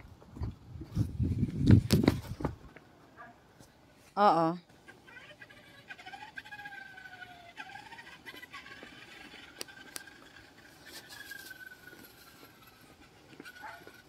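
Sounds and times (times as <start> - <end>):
toy car motor whining: 4.8 - 14.0
sharp ticks: 7.5 - 14.0.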